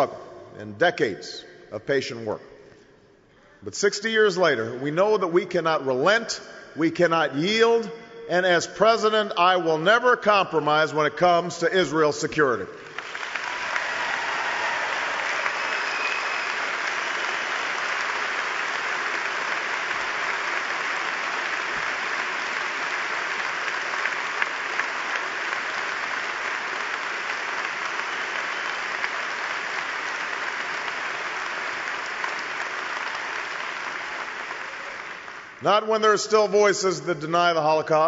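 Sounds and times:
large audience applauding: 12.8 - 35.6.

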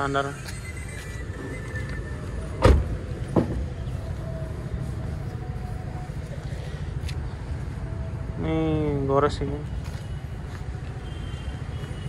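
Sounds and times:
car door shutting thud: 2.6 - 3.6.

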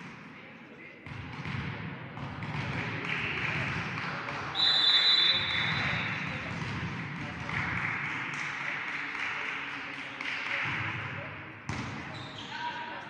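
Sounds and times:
sports hall background noise: 0.0 - 13.0
referee's whistle: 4.5 - 6.1.

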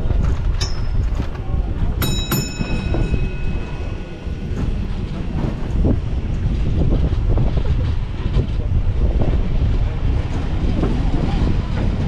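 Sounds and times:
steady low rumble: 0.0 - 12.0
sharp metallic clangs: 2.0 - 5.6.

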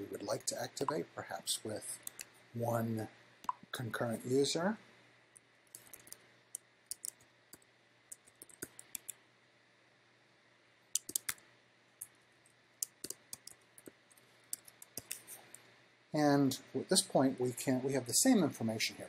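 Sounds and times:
keyboard keystroke clicks: 11.0 - 11.4.

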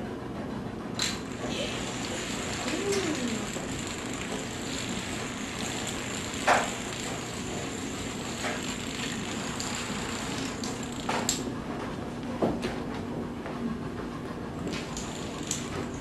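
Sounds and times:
dominoes toppling: 1.0 - 11.4, 15.0 - 15.8.

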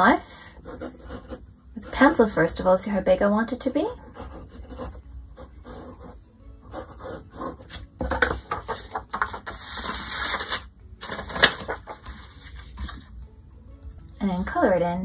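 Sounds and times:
pencil scratching on paper: 0.5 - 2.3, 3.9 - 9.9
paper rustling: 7.6 - 13.2.

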